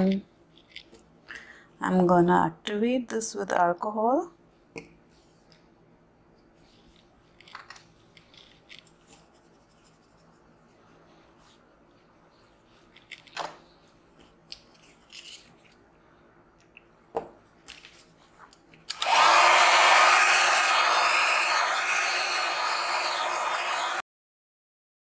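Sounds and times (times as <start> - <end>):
small electric blower running: 18.9 - 24.0.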